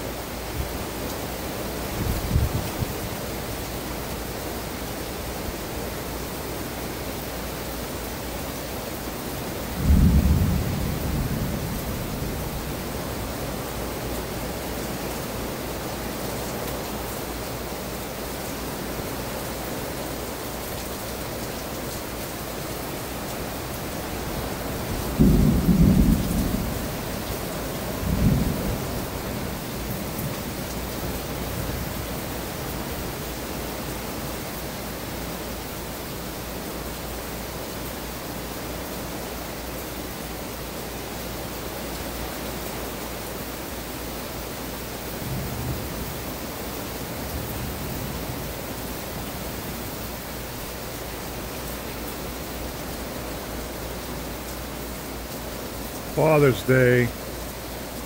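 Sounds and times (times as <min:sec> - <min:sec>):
heavy rain: 0:00.0 - 0:58.0
low thunder rumbles: 0:09.7 - 0:13.2, 0:24.7 - 0:29.6.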